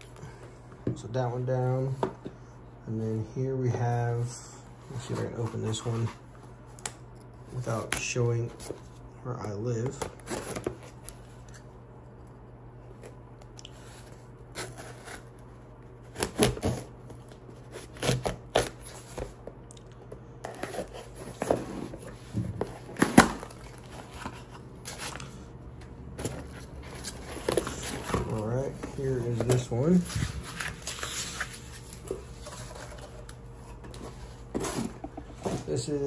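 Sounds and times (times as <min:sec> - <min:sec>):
low steady hum: 0:00.0 - 0:36.0
packaging scraping and rustling: 0:20.5 - 0:25.4, 0:26.2 - 0:36.0.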